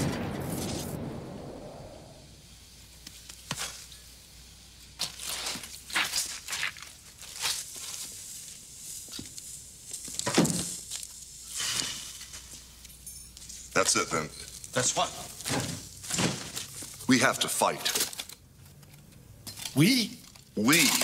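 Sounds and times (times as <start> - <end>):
explosion rumble: 0.0 - 2.5
debris crackling and knocking: 13.9 - 16.9.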